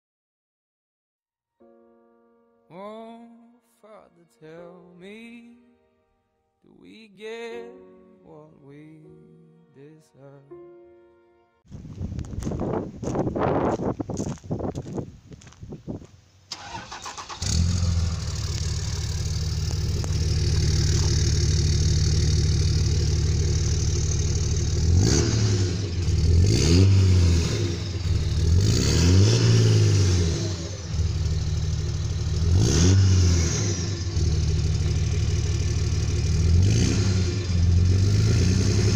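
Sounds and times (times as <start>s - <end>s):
diesel engine cranking: 16.5s - 38.9s
diesel engine idling: 16.5s - 38.9s
diesel engine revving: 16.5s - 38.9s.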